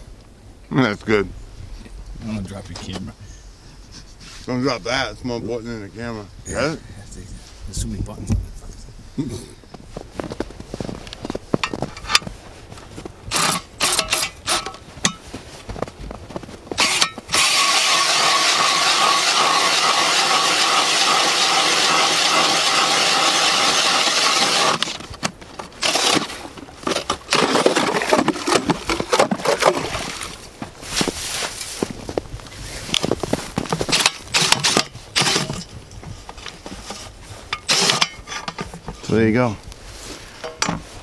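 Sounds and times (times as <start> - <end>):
cordless drill turning ice auger: 13.3 - 14.8, 16.8 - 25.1, 25.8 - 29.5, 33.9 - 35.6, 37.6 - 38.2.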